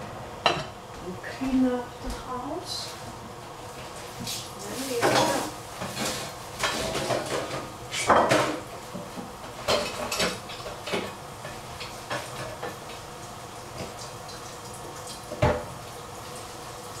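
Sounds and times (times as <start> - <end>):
dishes and utensils clinking: 5.0 - 12.8.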